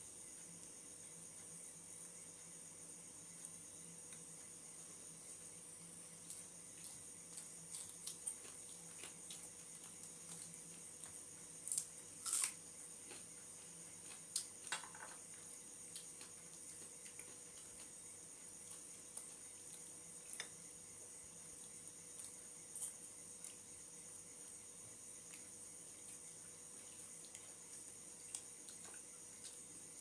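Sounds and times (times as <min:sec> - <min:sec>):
eating by hand: 0:03.3 - 0:30.0.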